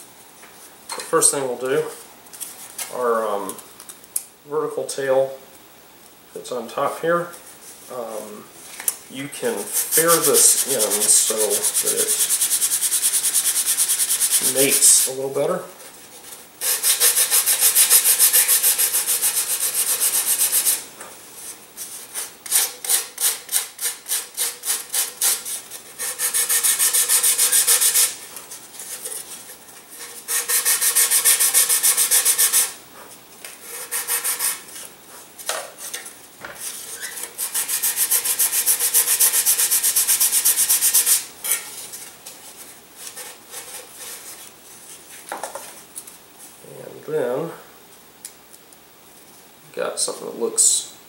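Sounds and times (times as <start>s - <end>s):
sanding block rasping on wood: 9.5s - 15.1s, 16.6s - 20.8s, 22.5s - 28.2s, 30.0s - 32.8s, 33.6s - 34.7s, 37.1s - 41.2s.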